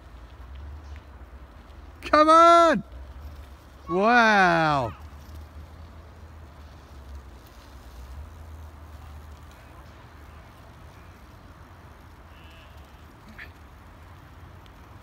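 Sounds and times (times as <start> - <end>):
faint outdoor background noise: 0.0 - 15.0.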